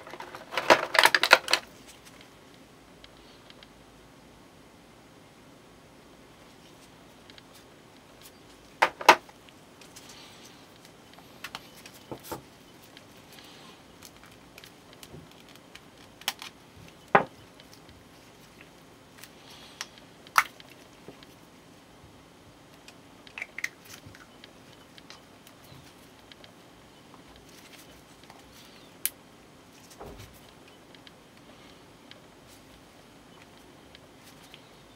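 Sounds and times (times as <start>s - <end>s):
plastic parts clicking and snapping: 0.0s - 2.2s, 14.0s - 17.9s
faint plastic rustling: 0.0s - 2.6s, 6.4s - 21.8s, 22.8s - 34.9s.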